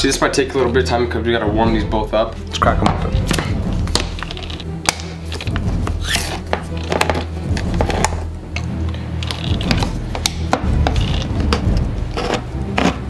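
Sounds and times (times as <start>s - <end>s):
background music: 0.0s - 13.0s
can opener clicking and scraping: 4.1s - 4.7s, 5.3s - 13.0s.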